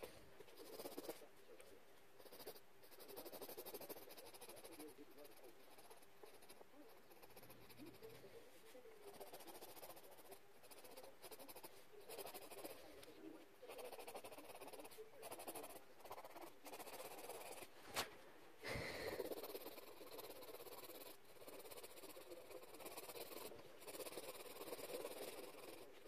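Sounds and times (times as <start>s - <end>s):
pencil scratching on paper: 0.0s - 17.8s, 19.2s - 26.0s
paper rustle: 17.8s - 18.2s.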